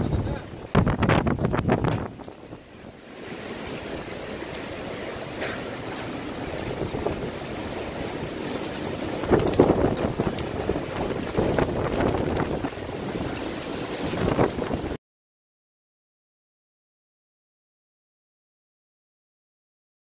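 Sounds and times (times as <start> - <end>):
storm wind gusts: 0.0 - 15.0.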